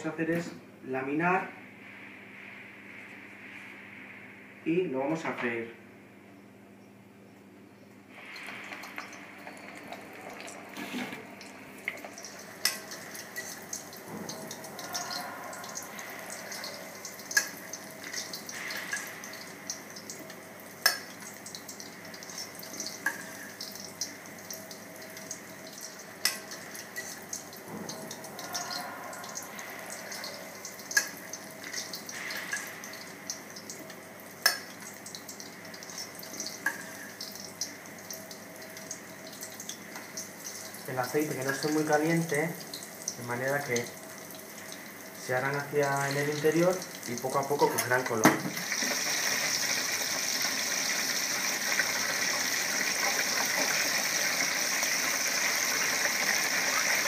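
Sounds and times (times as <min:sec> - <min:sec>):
food frying in oil: 0:08.1 - 0:57.0
sharp pops of frying oil: 0:20.8 - 0:21.1, 0:34.4 - 0:34.8.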